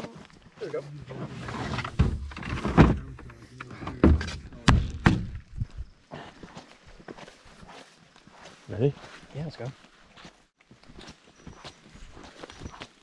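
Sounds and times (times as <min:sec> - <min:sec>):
knocks and thuds of gear: 0:01.8 - 0:05.5.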